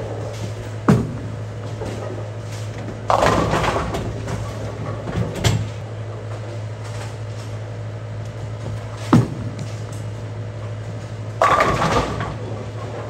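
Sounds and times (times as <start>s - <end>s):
steady low hum: 0.0s - 13.0s
bowling pins crashing: 2.9s - 5.7s, 11.4s - 13.0s.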